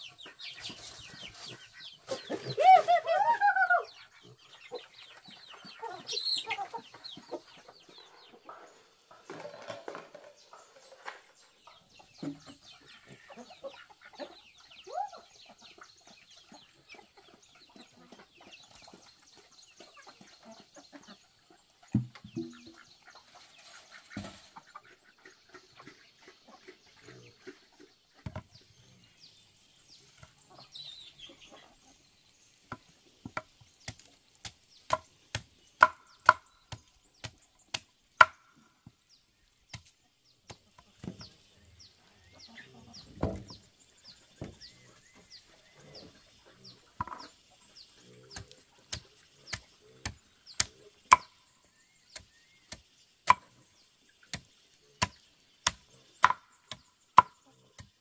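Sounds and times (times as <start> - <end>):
chicken clucking: 0.0 - 34.2, 40.5 - 51.4.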